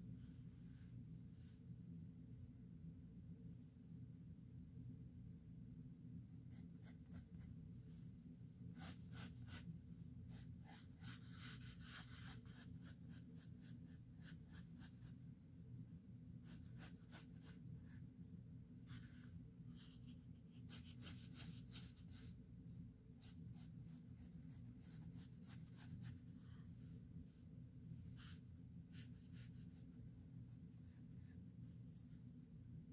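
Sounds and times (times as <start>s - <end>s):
pencil scratching on paper: 6.5s - 7.6s, 8.7s - 9.7s, 10.3s - 15.2s, 16.4s - 18.0s, 18.9s - 22.4s, 23.2s - 26.6s, 28.0s - 32.2s.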